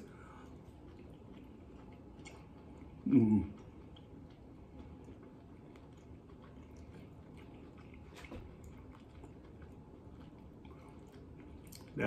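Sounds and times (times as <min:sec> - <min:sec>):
person chewing: 0:00.0 - 0:12.0
wet mouth clicks: 0:11.2 - 0:12.0.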